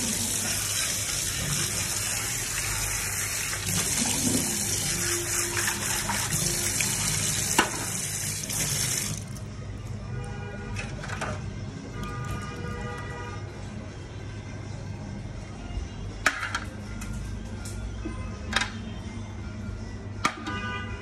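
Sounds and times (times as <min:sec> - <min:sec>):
tap water running into sink: 0:00.0 - 0:09.4.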